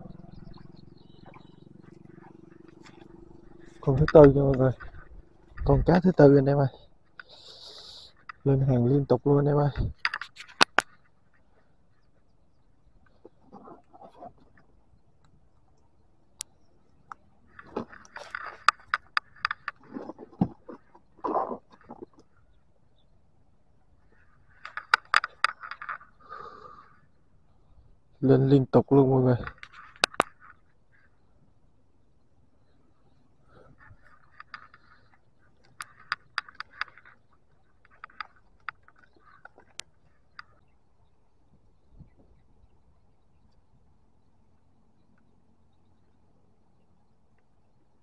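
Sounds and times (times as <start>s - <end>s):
sharp clicks and knocks: 2.2s - 6.0s, 9.8s - 11.0s, 17.1s - 20.6s, 24.6s - 26.0s, 29.4s - 30.6s, 35.6s - 37.2s, 37.8s - 40.6s.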